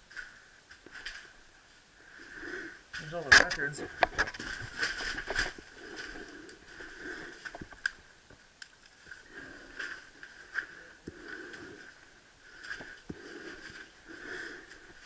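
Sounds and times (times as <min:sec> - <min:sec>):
rustling of paper records: 0:03.0 - 0:11.7.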